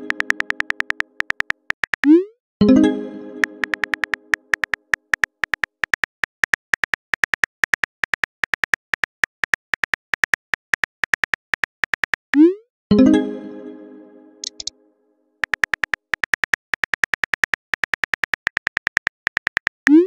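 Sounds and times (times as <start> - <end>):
phone keyboard typing clicks: 0.0 - 2.2, 3.4 - 12.3, 14.4 - 14.7, 15.4 - 20.0.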